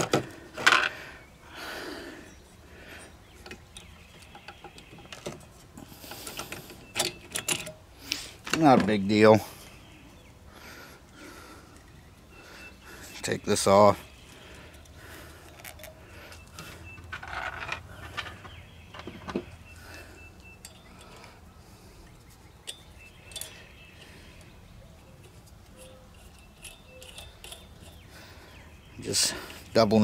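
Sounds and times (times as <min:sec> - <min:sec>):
small metal parts clinking: 0:14.6 - 0:19.1, 0:20.6 - 0:21.4, 0:22.6 - 0:24.4, 0:25.1 - 0:28.1.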